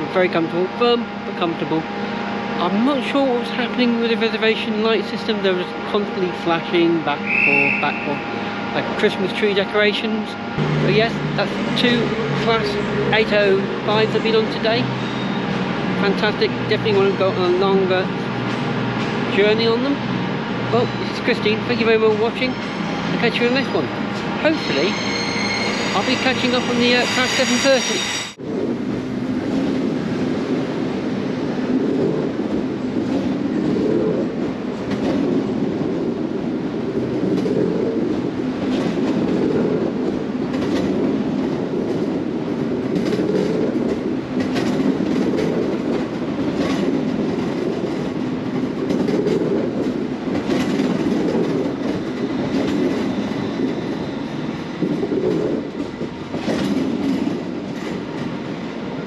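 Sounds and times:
train rumbling: 0.0s - 59.0s
wheels clicking over rail joints: 37.0s - 58.4s.

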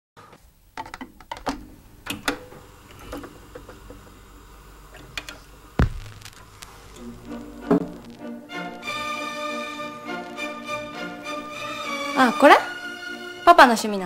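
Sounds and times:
vinyl record clicks on turntable: 0.3s - 4.1s, 4.9s - 8.2s
heavy low thump: 5.8s - 6.5s.

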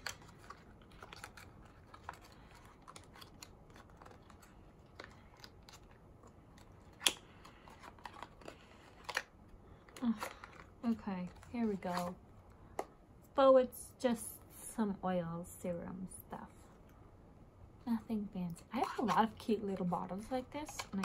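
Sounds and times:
hands opening plastic packaging: 0.0s - 12.2s.

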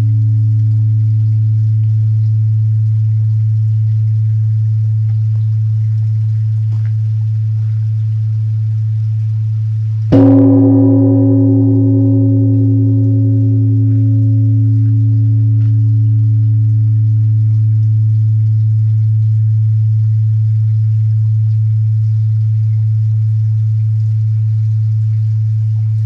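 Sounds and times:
large bronze bell ringing: 10.1s - 19.8s.

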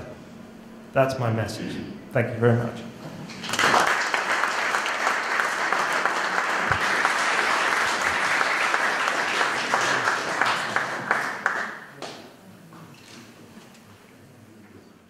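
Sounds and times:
audience applauding: 3.4s - 12.2s.

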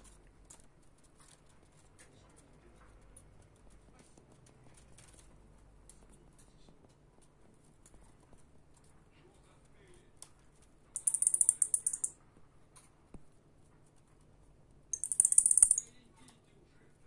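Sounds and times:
bats scratching on a net: 11.0s - 12.1s, 15.0s - 15.8s.

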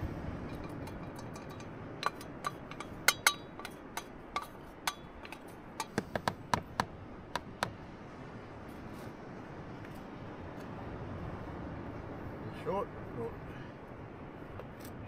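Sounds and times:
utensil clinking and scraping container: 0.4s - 6.2s.

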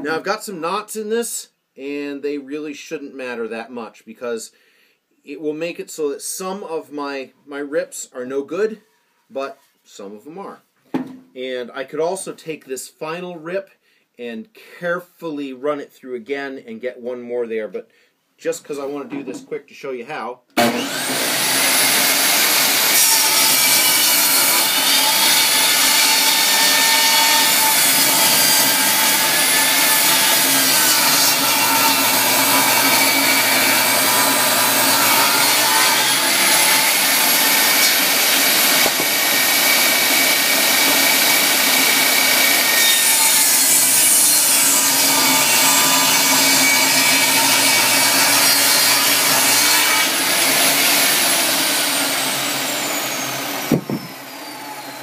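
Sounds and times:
table saw ripping board: 20.6s - 55.0s.

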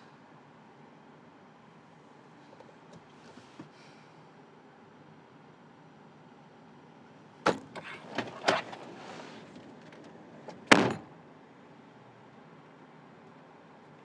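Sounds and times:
door shutting with a thump: 7.4s - 8.7s, 10.5s - 11.1s.

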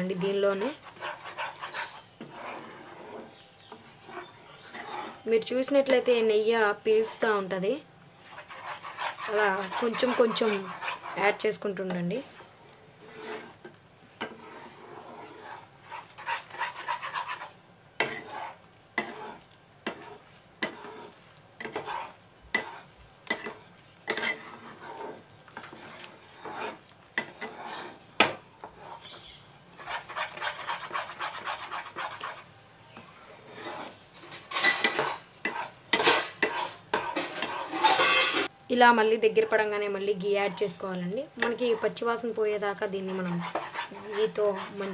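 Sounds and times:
spatula scraping batter in pan: 0.0s - 6.1s, 8.2s - 38.5s, 41.4s - 44.9s.

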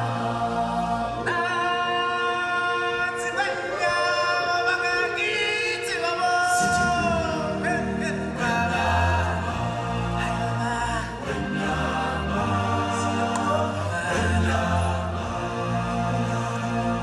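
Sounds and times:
group singing in harmony: 0.0s - 17.0s.

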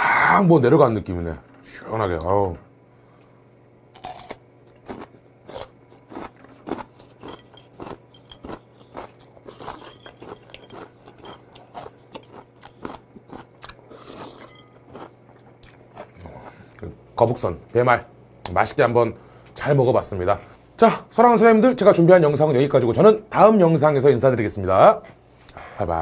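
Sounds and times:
crunchy chewing: 3.9s - 16.9s.

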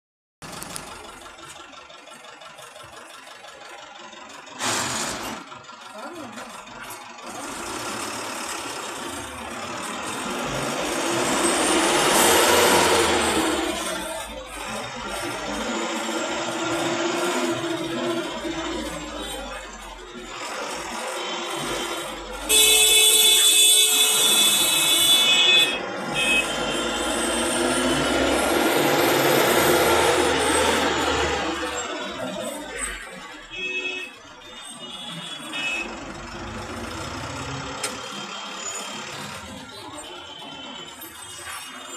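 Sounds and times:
city traffic from inside vehicle: 0.4s - 41.9s
engine and road noise: 0.4s - 41.9s
vehicle horn: 21.2s - 28.3s, 32.8s - 36.2s.

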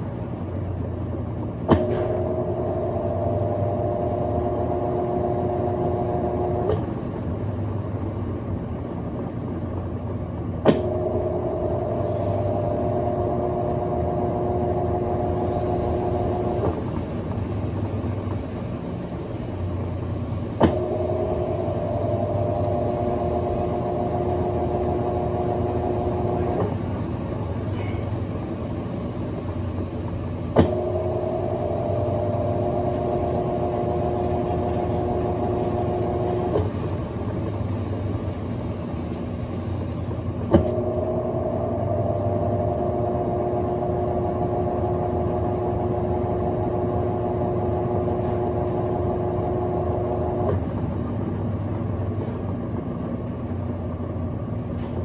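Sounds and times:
washing machine motor hum: 0.0s - 55.0s.

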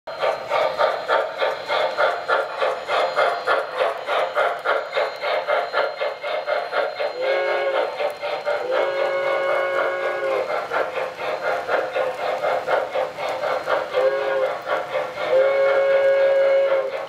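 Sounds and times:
model steam locomotive chuffing: 0.1s - 17.0s
steam whistle chord: 7.0s - 10.4s, 15.3s - 16.9s.

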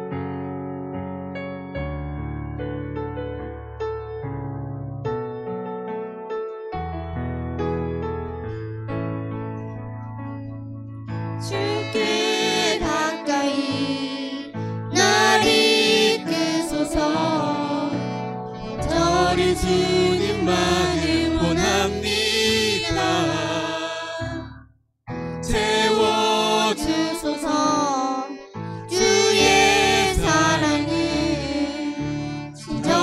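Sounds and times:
keyboard: 0.0s - 33.0s
violin: 11.1s - 24.5s, 25.4s - 33.0s
woman and man singing: 11.5s - 18.1s, 18.8s - 24.5s, 25.4s - 33.0s.

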